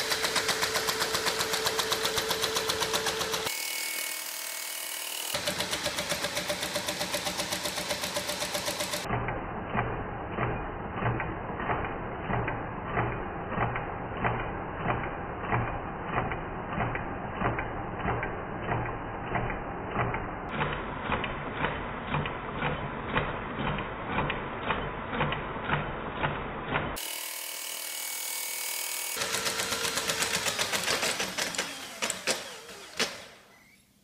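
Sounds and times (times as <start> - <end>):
machine mechanical whir: 0.0 - 34.0
regular mechanical knock: 5.3 - 27.0, 29.0 - 33.8.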